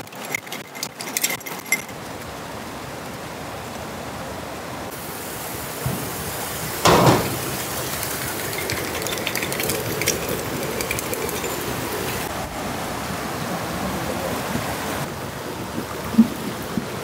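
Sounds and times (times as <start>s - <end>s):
river rapids rushing: 0.0s - 16.0s
loud knock: 6.9s - 7.6s.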